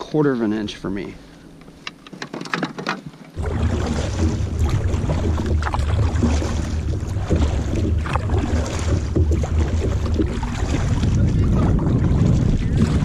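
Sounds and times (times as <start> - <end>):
kayak paddle strokes splashing: 3.0 - 13.0
wind rumbling on microphone: 3.4 - 13.0.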